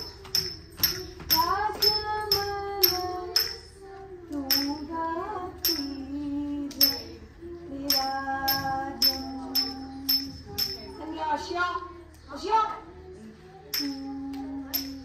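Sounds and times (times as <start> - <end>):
small hand cymbals striking: 0.0 - 3.8, 4.4 - 5.0, 5.6 - 7.2, 7.9 - 11.0, 13.7 - 15.0
woman singing: 0.0 - 15.0.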